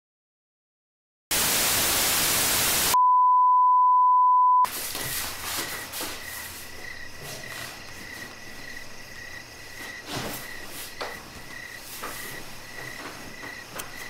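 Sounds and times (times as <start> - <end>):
television static hiss: 1.4 - 3.0
high-pitched test-tone beep: 3.0 - 4.7
crickets chirping: 4.9 - 14.0.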